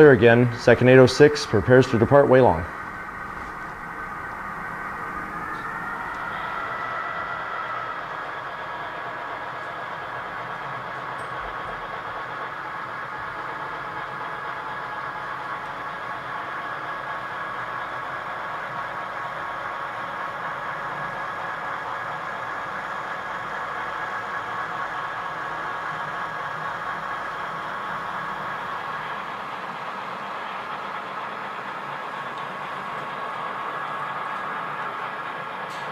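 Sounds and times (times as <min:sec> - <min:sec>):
faint whine: 0:00.0 - 0:18.4
diesel locomotive engine: 0:00.0 - 0:35.9.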